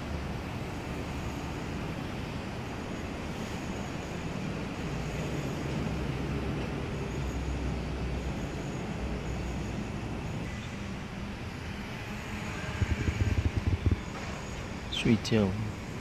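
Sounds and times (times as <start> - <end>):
faint engine hum: 0.0 - 16.0
vehicle rumble: 5.8 - 15.0.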